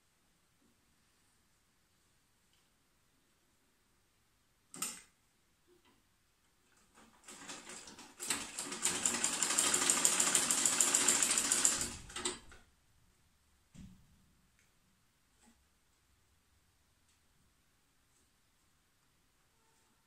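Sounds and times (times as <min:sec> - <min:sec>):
sewing machine stitching: 0:07.0 - 0:12.6.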